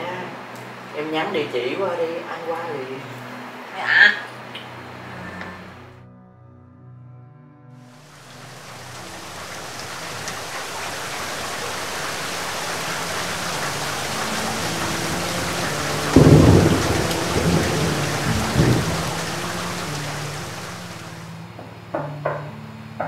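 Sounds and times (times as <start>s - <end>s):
heavy rain hissing: 7.9s - 21.5s
thunder rumbling: 8.2s - 21.3s.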